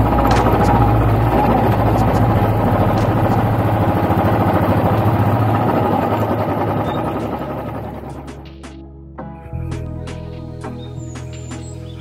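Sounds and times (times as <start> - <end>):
motorcycle engine thumping: 0.0 - 5.6.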